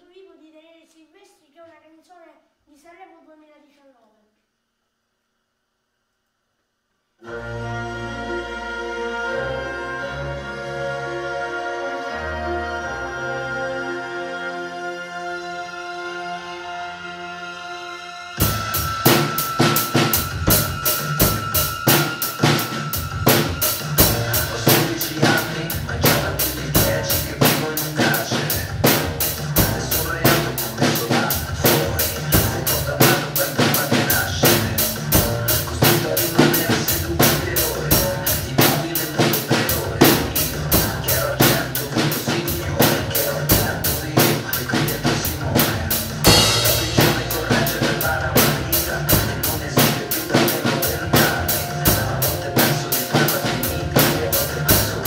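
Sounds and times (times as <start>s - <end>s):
backing track music: 7.2s - 55.0s
cymbal crash: 17.9s - 26.6s, 45.9s - 54.2s
drum kit playing pop-rock groove: 18.4s - 55.0s.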